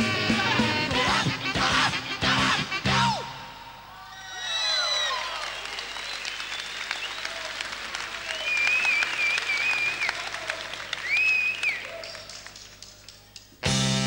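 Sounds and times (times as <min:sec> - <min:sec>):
long whistle: 0:04.2 - 0:07.4, 0:08.2 - 0:10.2, 0:11.0 - 0:12.2
audience applauding: 0:04.8 - 0:13.5.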